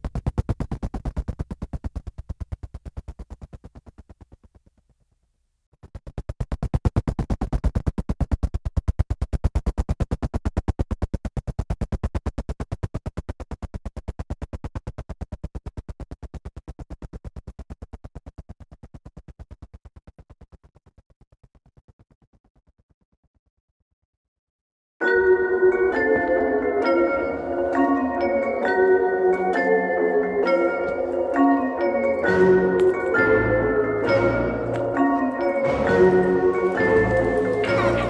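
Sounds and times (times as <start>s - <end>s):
pulsing synthesizer music: 25.0s - 38.0s.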